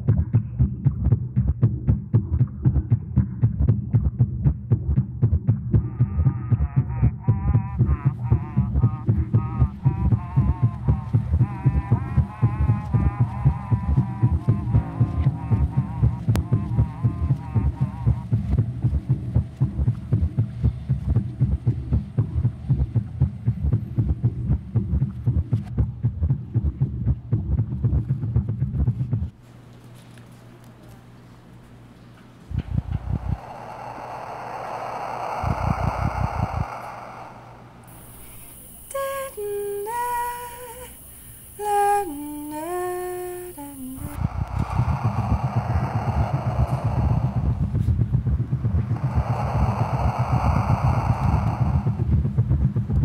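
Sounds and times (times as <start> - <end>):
low throbbing pulse: 0.0 - 29.4, 32.5 - 53.0
wordless vocal melody: 6.0 - 22.2, 37.6 - 46.2.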